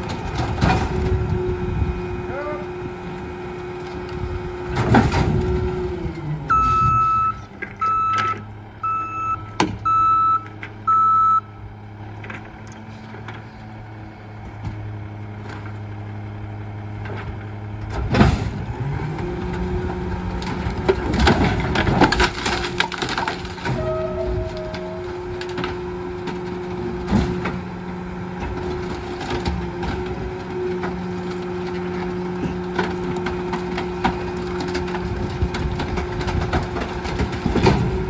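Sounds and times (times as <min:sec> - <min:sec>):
junk banging into hopper: 0:00.0 - 0:01.3, 0:04.6 - 0:08.4, 0:17.0 - 0:38.0
garbage truck engine: 0:00.0 - 0:38.0
alarm beeps: 0:06.5 - 0:11.5
wood clattering and cracking: 0:19.1 - 0:23.9, 0:28.4 - 0:38.0.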